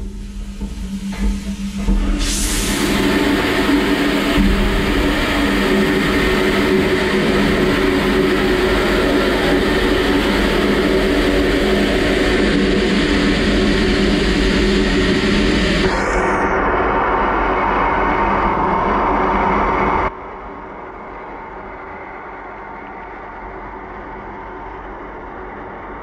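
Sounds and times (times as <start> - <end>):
washing machine hum: 0.0 - 26.0.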